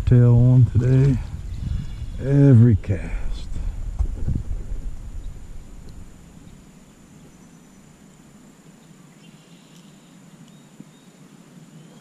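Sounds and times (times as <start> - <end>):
low rumble: 0.0 - 8.6.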